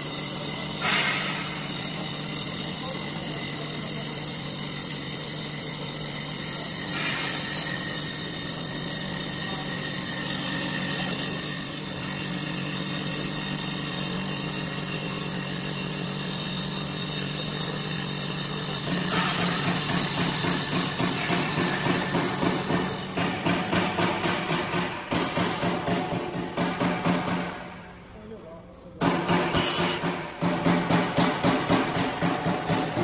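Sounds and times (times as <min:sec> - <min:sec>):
wood lathe cutting whir: 0:00.0 - 0:25.8.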